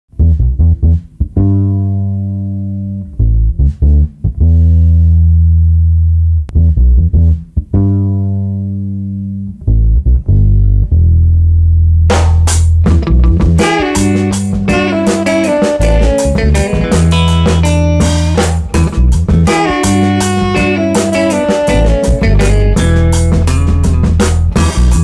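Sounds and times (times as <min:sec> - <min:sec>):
electric bass funk riff: 0:00.2 - 0:25.0
full band playing: 0:12.6 - 0:25.0.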